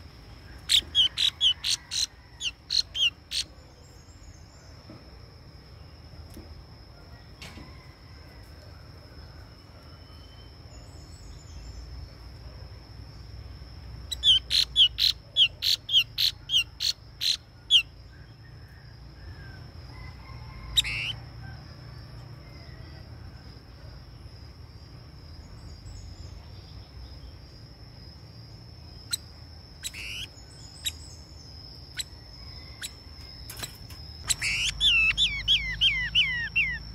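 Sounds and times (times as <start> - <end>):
songbird calling: 0.0 - 4.7, 14.1 - 18.3, 20.6 - 21.2, 29.0 - 36.9.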